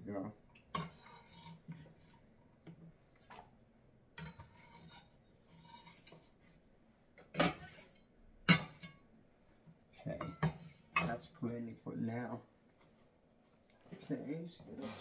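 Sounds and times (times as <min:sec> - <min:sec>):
kitchen utensils scraping: 0:00.7 - 0:02.2, 0:04.2 - 0:06.5, 0:07.3 - 0:09.0, 0:10.2 - 0:11.2.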